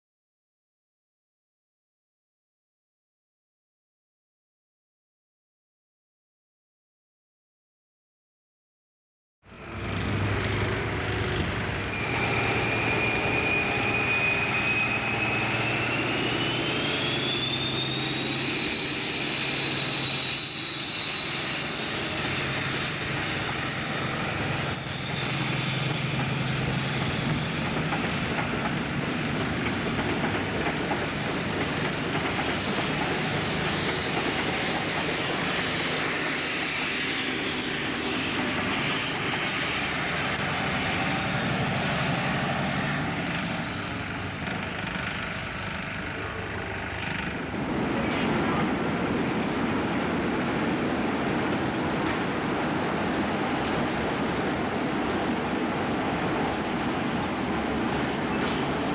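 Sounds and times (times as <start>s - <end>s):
diesel train engine rumble: 9.5s - 58.9s
turbocharger whistle: 11.9s - 28.6s.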